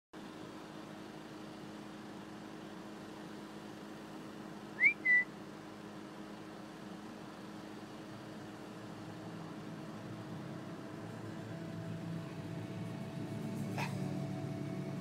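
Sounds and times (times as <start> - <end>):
two-note whistle: 4.8 - 5.3.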